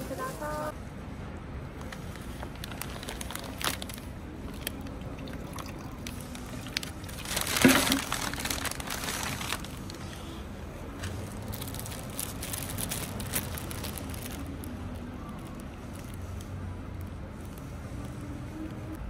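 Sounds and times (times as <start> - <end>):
paper bag rustling: 2.0 - 4.8, 6.0 - 10.2, 11.0 - 16.3.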